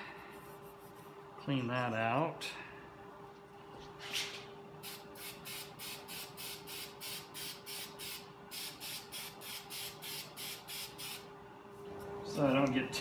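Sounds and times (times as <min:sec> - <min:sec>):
spray can hissing in puffs: 0:04.8 - 0:11.2.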